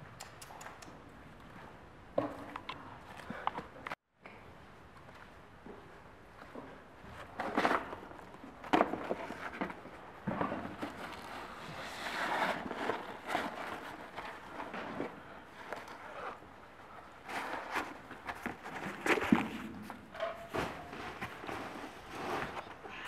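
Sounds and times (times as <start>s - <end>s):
rustling: 7.1s - 23.0s.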